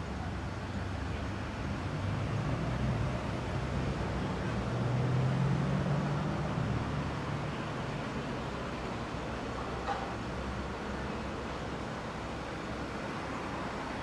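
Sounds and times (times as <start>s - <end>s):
road noise: 0.0s - 14.0s
passing vehicle engine hum: 0.2s - 9.6s.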